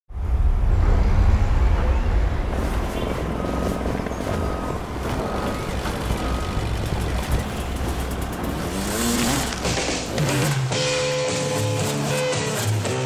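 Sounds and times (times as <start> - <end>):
industrial machinery rumble: 0.1 - 11.8
reversing alarm beeps: 3.0 - 7.4.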